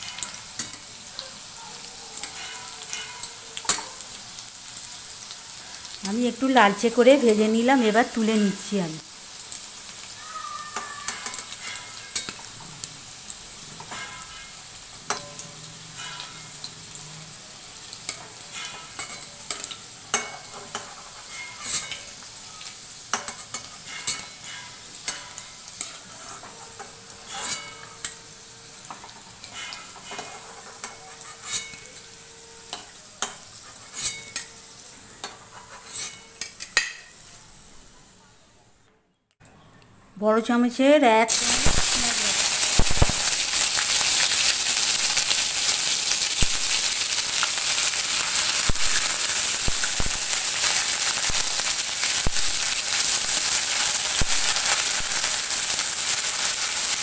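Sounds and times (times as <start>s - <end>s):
food sizzling in hot oil: 0.0s - 38.6s, 40.7s - 57.0s
spatula scraping metal pan: 2.2s - 3.9s, 13.7s - 16.6s, 18.1s - 22.2s, 23.1s - 28.2s, 28.8s - 37.1s.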